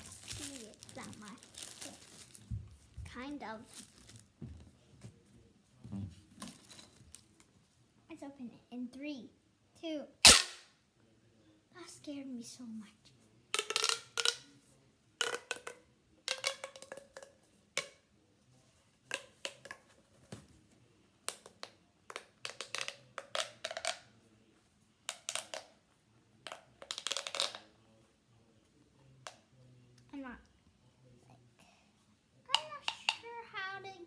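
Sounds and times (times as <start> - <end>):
plastic pop tube clicking and popping: 13.6 - 14.4, 15.2 - 18.0, 19.0 - 19.8, 21.3 - 24.0, 25.1 - 25.8, 26.5 - 27.6.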